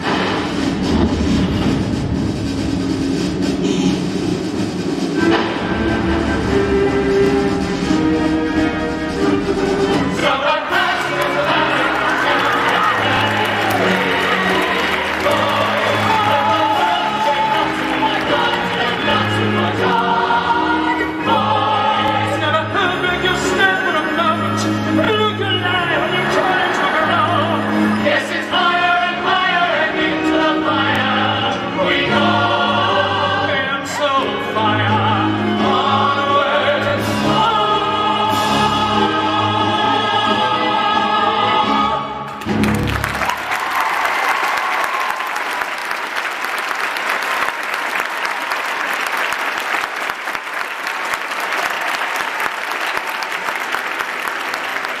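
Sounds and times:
pit orchestra: 0:00.0 - 0:55.0
audience applause: 0:10.7 - 0:20.3, 0:42.4 - 0:55.0.

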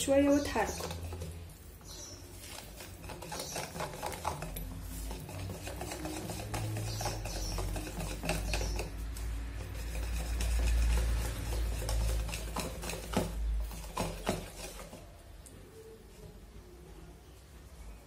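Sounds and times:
whisk stirring batter: 0:00.0 - 0:15.3
whisk clicking against bowl: 0:00.4 - 0:01.4, 0:02.5 - 0:15.0.

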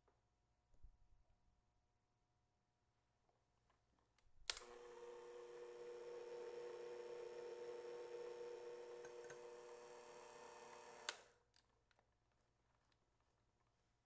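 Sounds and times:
mixer switch click: 0:04.5 - 0:04.9, 0:08.8 - 0:09.7, 0:10.6 - 0:11.3
electric hand mixer humming: 0:04.6 - 0:11.3.

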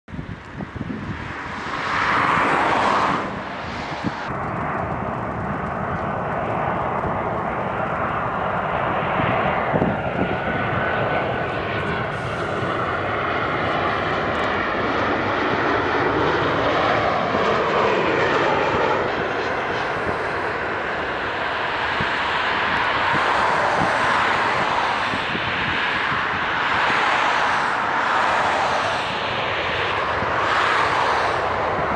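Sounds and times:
jet engines roaring: 0:00.1 - 0:31.9.

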